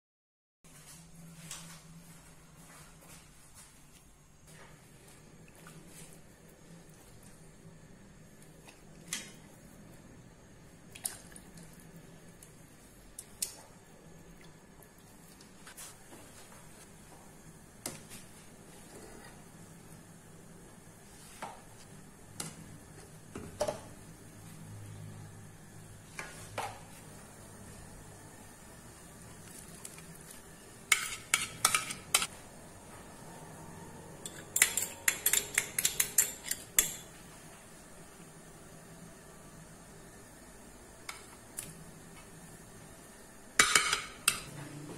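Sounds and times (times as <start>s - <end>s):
dishes clinking and tapping: 34.2s - 37.1s, 43.6s - 44.5s.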